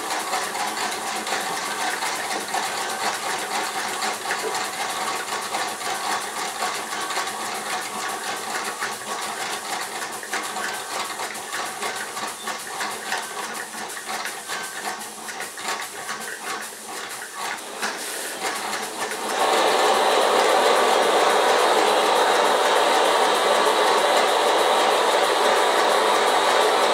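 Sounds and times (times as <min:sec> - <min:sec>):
steam engine ticking: 0:00.0 - 0:26.9
steam and burner hiss: 0:16.0 - 0:26.9
blowtorch rushing hiss: 0:17.6 - 0:26.9.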